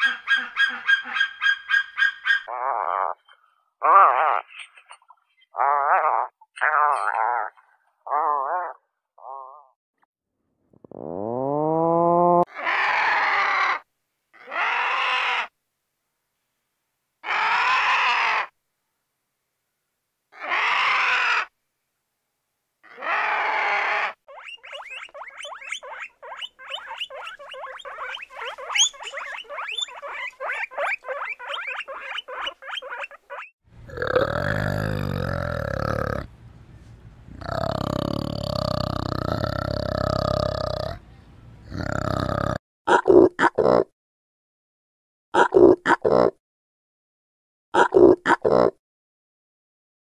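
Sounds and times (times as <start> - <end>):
guinea pigs squeaking: 0.0 - 2.5, 24.3 - 33.5
rasping animal calls: 0.0 - 9.7, 12.2 - 13.8, 14.4 - 15.5, 22.8 - 36.3, 37.3 - 41.0
orangutan call: 20.4 - 21.5, 22.8 - 24.6.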